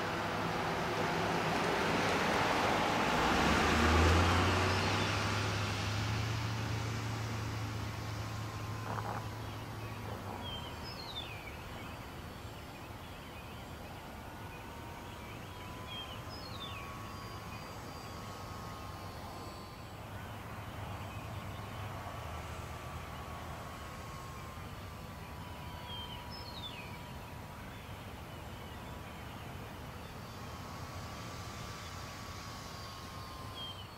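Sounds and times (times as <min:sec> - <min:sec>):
model airplane motor whine: 0:00.0 - 0:33.9
bird calling: 0:07.9 - 0:22.0.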